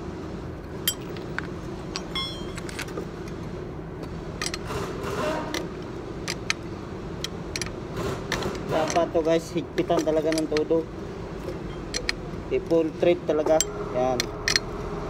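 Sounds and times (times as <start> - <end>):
low background hum: 0.0 - 15.0
wrench clicking on metal nut: 4.4 - 4.7, 6.2 - 6.6, 7.2 - 9.1, 9.8 - 10.8, 11.9 - 12.2, 13.6 - 14.7.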